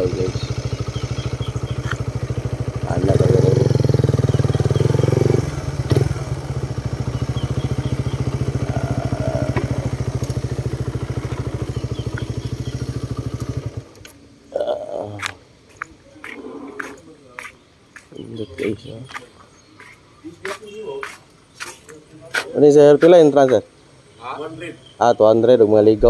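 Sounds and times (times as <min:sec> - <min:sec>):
engine clicks: 0:00.0 - 0:04.8, 0:07.0 - 0:14.2
motorcycle engine idling: 0:00.0 - 0:14.1.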